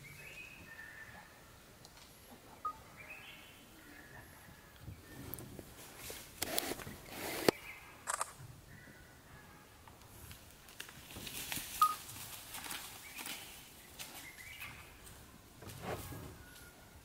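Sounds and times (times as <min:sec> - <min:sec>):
bird chirp: 0:00.0 - 0:01.6, 0:02.6 - 0:05.5, 0:06.9 - 0:08.1, 0:13.0 - 0:15.3
dry leaves rustling: 0:10.2 - 0:16.8.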